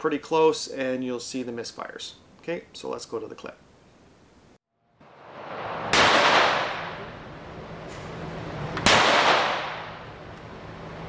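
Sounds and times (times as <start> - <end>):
gunshots ringing indoors: 5.2 - 7.2, 8.8 - 10.1.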